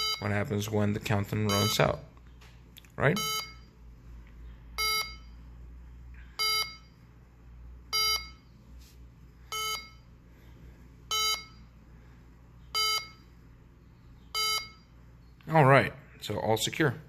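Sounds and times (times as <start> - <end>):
alarm keypad short beeps: 0.0 - 0.3, 1.4 - 2.0, 3.2 - 3.7, 4.8 - 5.4, 6.4 - 7.0, 7.9 - 8.5, 11.1 - 11.6, 12.8 - 13.2, 14.4 - 14.9.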